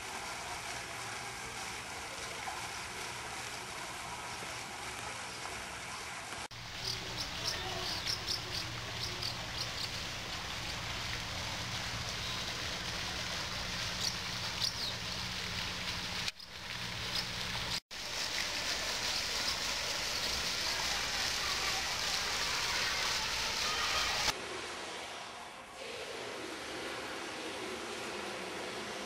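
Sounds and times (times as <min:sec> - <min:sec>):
even outdoor hiss: 0:00.0 - 0:29.0.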